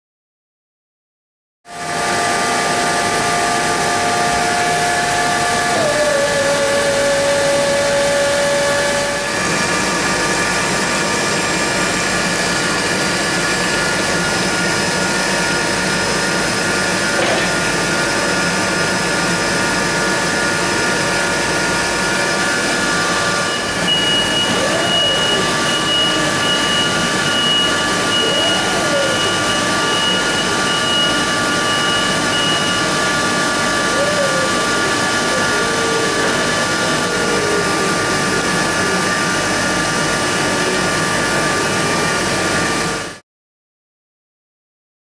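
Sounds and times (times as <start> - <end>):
electric forklift motor whine: 1.7 - 43.2
higher whine of forklift driving: 1.7 - 43.2.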